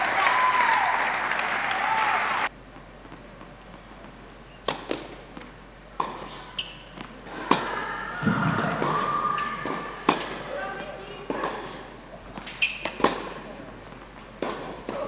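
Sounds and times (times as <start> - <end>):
tennis ball hits and bounces: 4.6 - 10.5, 11.2 - 15.0.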